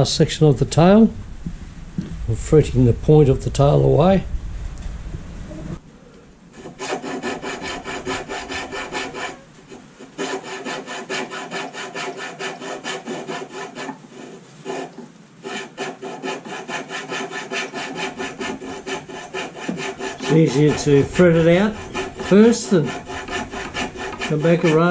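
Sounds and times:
fretsaw cutting wood: 6.6 - 24.9.

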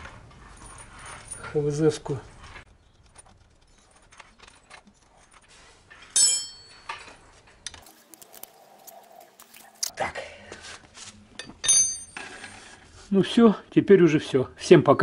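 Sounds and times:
sharp ringing clink: 6.2 - 7.0, 11.6 - 12.2.

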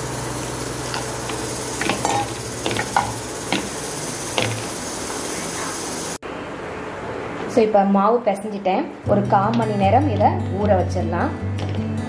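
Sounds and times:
steady hiss: 0.0 - 6.2.

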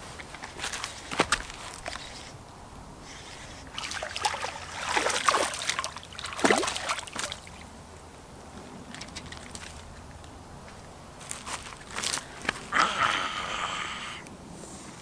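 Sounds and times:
fish splashing in water: 3.7 - 7.7.

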